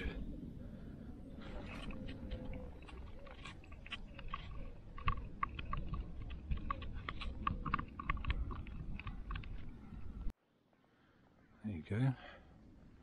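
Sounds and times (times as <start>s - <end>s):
steady low rumble: 0.0s - 10.3s
footsteps on stony path: 1.4s - 10.3s.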